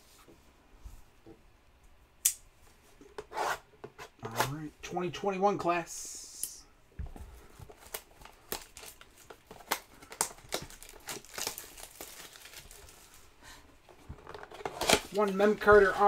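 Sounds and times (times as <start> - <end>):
plastic wrap crumpling: 7.6 - 13.4, 14.1 - 16.0
plastic shrink wrap tearing: 7.8 - 13.2, 14.3 - 15.7.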